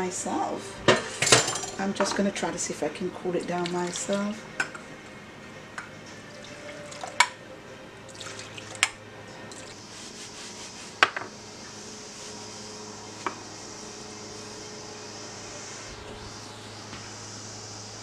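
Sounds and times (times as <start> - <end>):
liquid pouring and splashing: 8.1 - 9.8.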